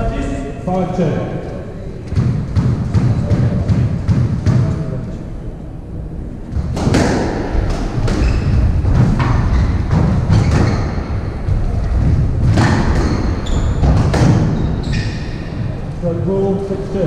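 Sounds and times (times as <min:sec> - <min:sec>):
squash ball hitting rackets and walls: 0:02.1 - 0:05.0, 0:06.6 - 0:15.8
shoe squeaks on court: 0:14.6 - 0:15.4.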